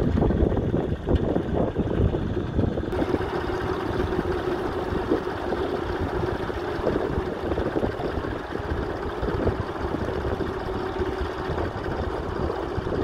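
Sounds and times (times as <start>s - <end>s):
tractor engine under load: 0.0s - 13.0s.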